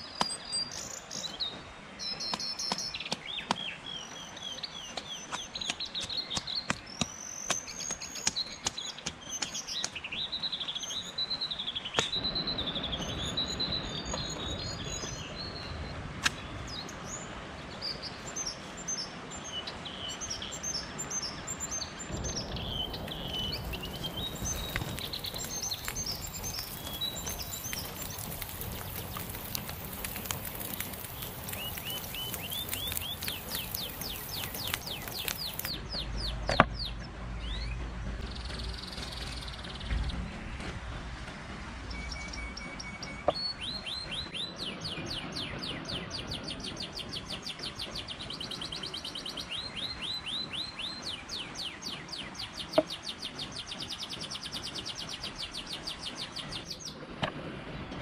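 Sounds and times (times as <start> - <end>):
songbirds singing and chirping: 0.0 - 40.7, 41.9 - 57.1
sticks and stones clicking: 22.8 - 35.8.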